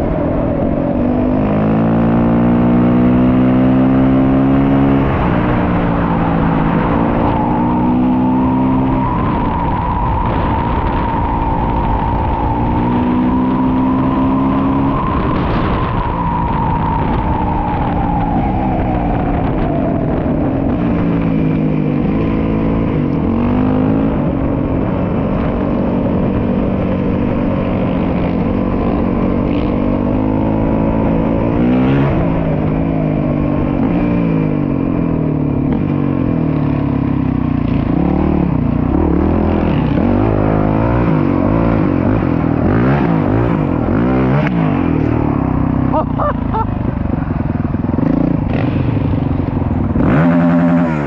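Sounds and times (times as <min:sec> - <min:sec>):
motorcycle engine running: 0:32.1 - 0:51.0.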